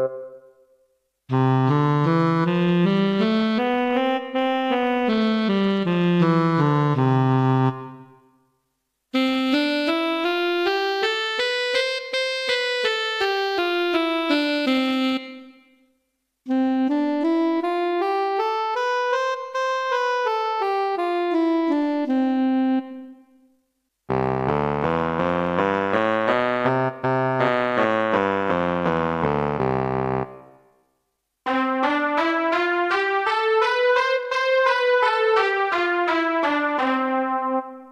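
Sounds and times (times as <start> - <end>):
keyboard playing scales: 0.0 - 0.5, 1.3 - 8.1, 9.2 - 15.5, 16.5 - 23.2, 24.1 - 30.4, 31.5 - 37.9.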